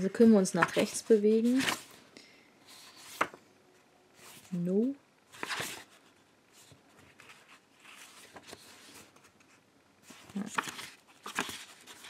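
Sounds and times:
book pages rustling: 0.1s - 2.0s, 2.7s - 3.4s, 5.3s - 12.0s
page flip: 0.6s - 2.0s, 2.8s - 3.4s, 5.3s - 12.0s.

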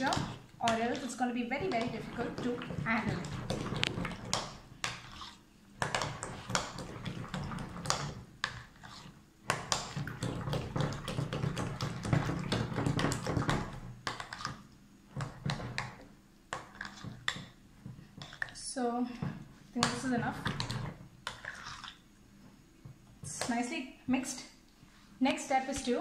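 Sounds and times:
spoon scraping glass bowl: 0.0s - 9.2s, 16.6s - 17.2s, 19.9s - 22.0s.

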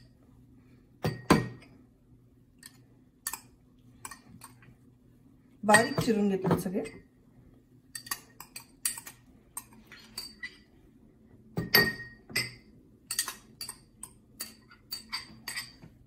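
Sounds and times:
metal spoon clinking on ceramic bowls: 2.6s - 4.6s, 5.7s - 7.1s, 7.9s - 10.7s, 11.6s - 15.8s.

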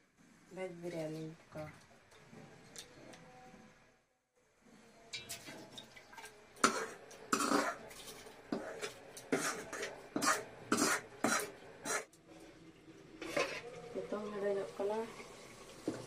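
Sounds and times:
utensil scraping metal pan: 8.5s - 12.1s.

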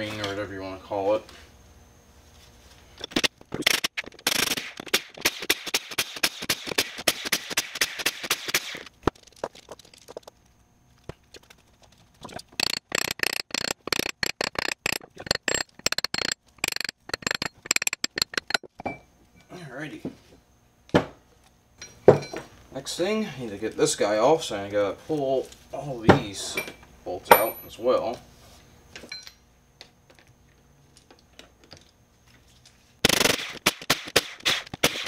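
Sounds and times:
impact wrench rattling: 3.0s - 10.4s, 12.2s - 18.9s, 33.1s - 35.0s.

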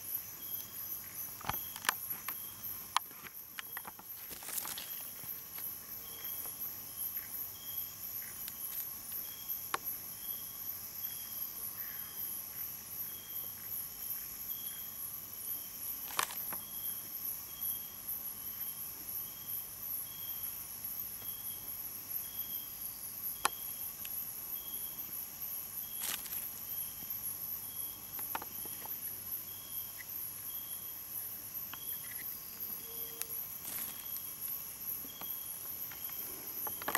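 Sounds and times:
crickets trilling: 0.0s - 36.9s
insect chirping: 0.0s - 36.9s.

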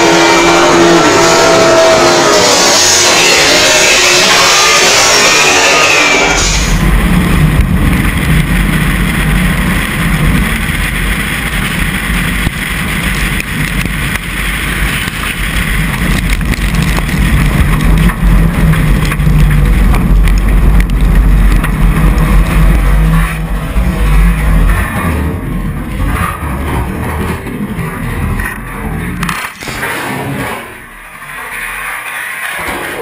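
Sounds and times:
race car engine: 0.0s - 33.0s.

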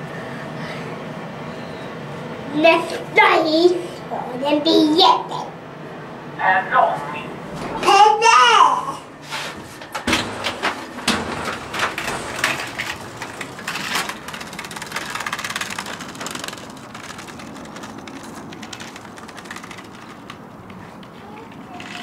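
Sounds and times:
scooter wheels rattling on paving: 11.0s - 22.0s.

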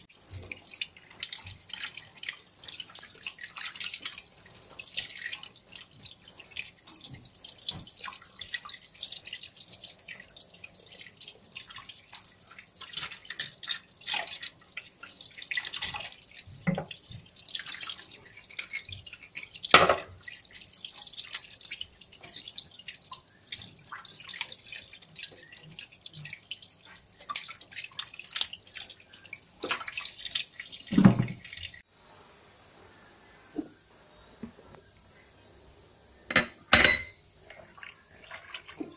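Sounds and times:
wet splashes and drips: 0.0s - 31.8s
tap water splashing into sink: 4.8s - 8.8s, 15.5s - 18.0s, 19.7s - 20.4s, 29.6s - 31.8s.

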